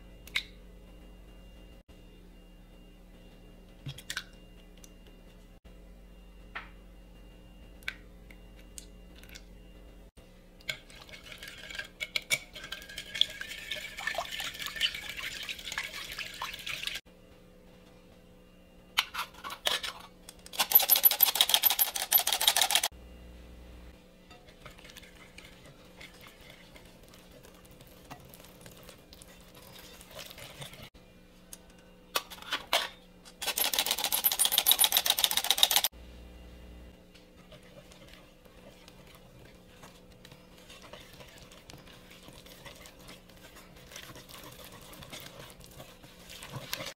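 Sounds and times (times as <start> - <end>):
utensil beating in a mixing bowl: 10.6 - 17.0, 24.3 - 30.9, 37.1 - 46.9.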